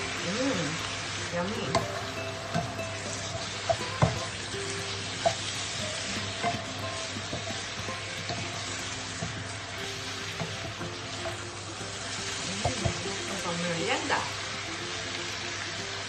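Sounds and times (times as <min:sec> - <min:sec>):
noodles sizzling in frying pan: 0:00.0 - 0:16.0
spatula knocking on pan: 0:01.7 - 0:11.5, 0:12.3 - 0:13.5.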